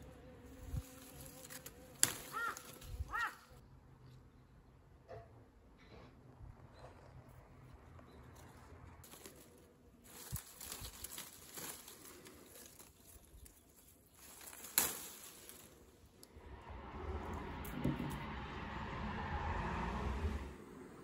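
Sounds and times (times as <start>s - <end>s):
leaves and twigs rustling: 0.0s - 3.5s, 8.2s - 16.3s
twig snapping: 1.1s - 2.9s, 10.1s - 15.8s.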